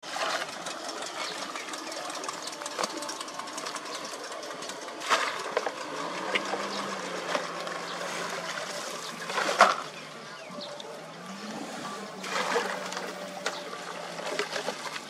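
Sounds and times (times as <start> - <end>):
low motor hum: 0.0 - 15.0
water splashing and sloshing: 0.0 - 15.0
sharp splash: 6.2 - 10.0, 12.1 - 15.0.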